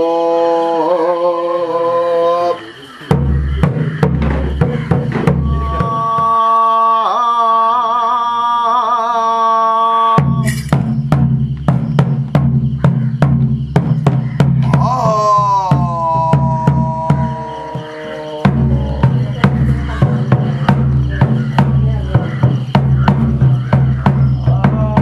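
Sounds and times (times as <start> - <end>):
ritual drums beating: 2.8 - 6.8, 10.1 - 25.0.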